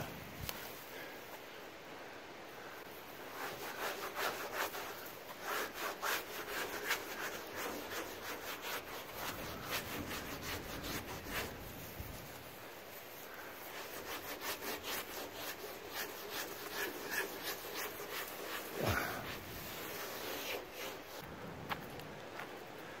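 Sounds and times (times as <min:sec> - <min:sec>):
wet rag scrubbing wood: 0:03.1 - 0:12.2, 0:13.0 - 0:21.2.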